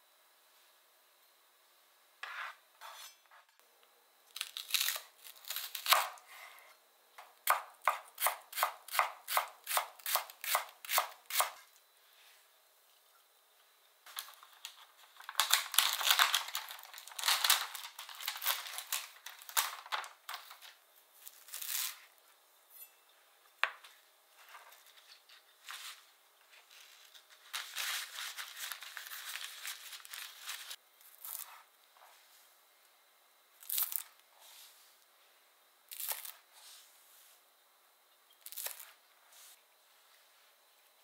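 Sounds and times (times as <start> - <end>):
greens rustling: 26.6 - 30.8.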